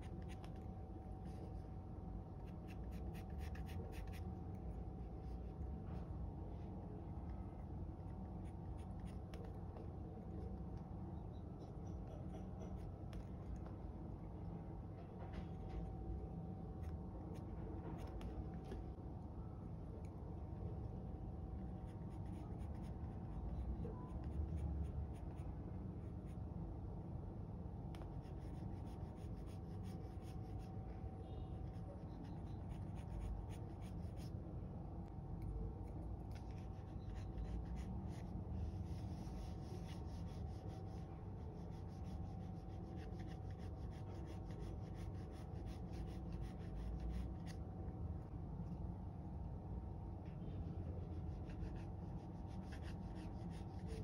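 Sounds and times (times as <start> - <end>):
pencil scratching on paper: 0.0 - 1.6, 2.4 - 5.6, 21.8 - 26.4, 27.9 - 31.0, 31.6 - 34.3, 35.9 - 47.6, 50.8 - 54.0
steady low hum: 0.0 - 54.0.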